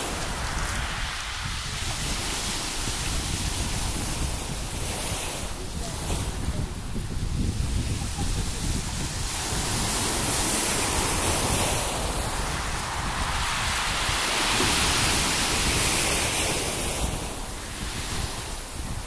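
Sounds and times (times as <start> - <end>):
surf washing on pebble beach: 0.0 - 19.0
wind buffeting microphone: 0.0 - 19.0.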